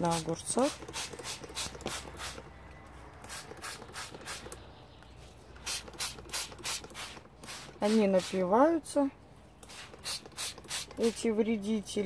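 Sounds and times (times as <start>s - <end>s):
spray bottle hissing: 0.1s - 2.5s, 3.2s - 4.6s, 5.6s - 8.5s, 9.6s - 11.2s.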